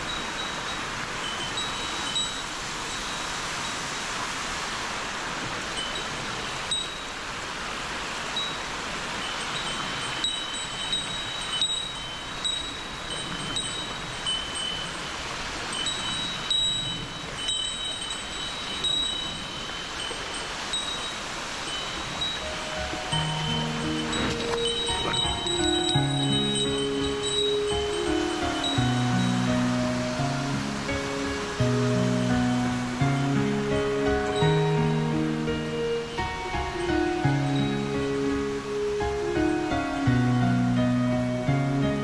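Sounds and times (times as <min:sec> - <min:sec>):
small bell tinkling: 0:00.0 - 0:03.8, 0:09.2 - 0:29.5
flowing water: 0:00.0 - 0:42.0.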